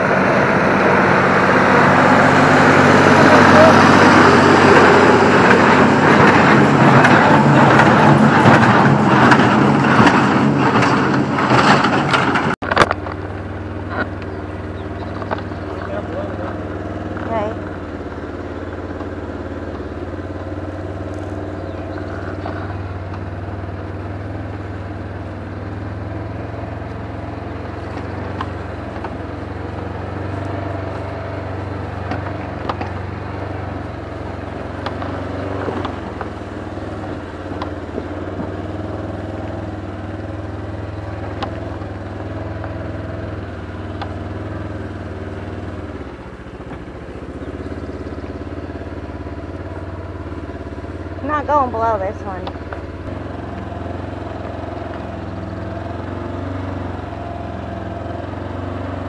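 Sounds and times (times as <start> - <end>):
vehicle engine running: 0.0 - 59.0
clicks and rattles: 5.4 - 14.3.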